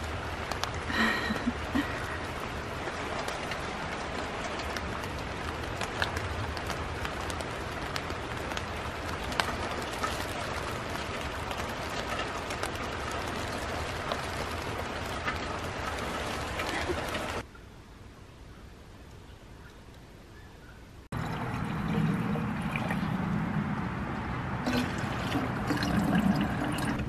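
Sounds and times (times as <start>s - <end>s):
rain hissing: 0.0s - 17.4s, 21.1s - 27.0s
sharp ticks of raindrops: 0.0s - 17.5s.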